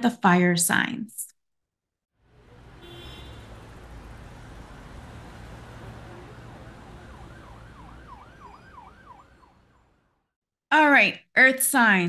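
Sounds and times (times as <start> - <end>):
street traffic rumble: 2.2 - 10.2
emergency siren yelping: 2.4 - 10.2.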